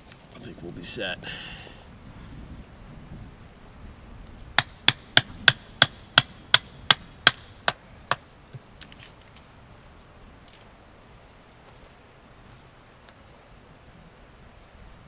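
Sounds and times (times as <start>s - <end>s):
blade chopping wood: 4.6s - 8.2s.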